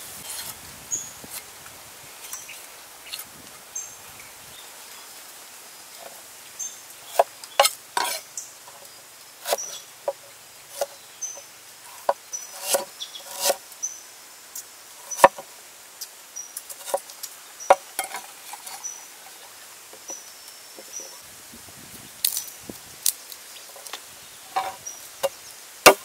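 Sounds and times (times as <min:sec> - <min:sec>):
cleaver chopping on wooden board: 0:12.1 - 0:13.6.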